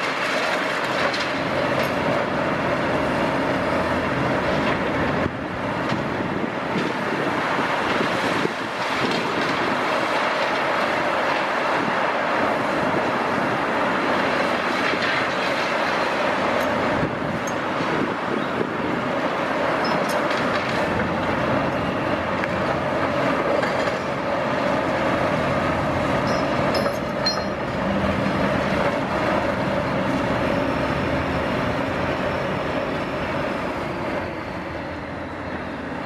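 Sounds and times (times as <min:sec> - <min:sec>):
excavator engine and hydraulics droning: 0:00.0 - 0:36.0
faint metallic squeaks: 0:26.3 - 0:27.6.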